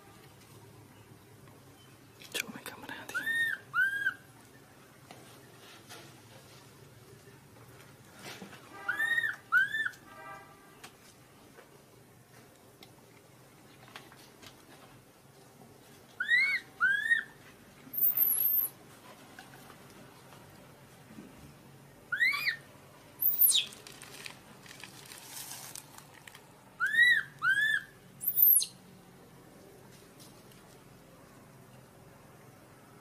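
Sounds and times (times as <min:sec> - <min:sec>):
infant monkey crying: 0:03.2 - 0:04.2, 0:16.2 - 0:17.3, 0:22.1 - 0:22.6, 0:26.8 - 0:28.6.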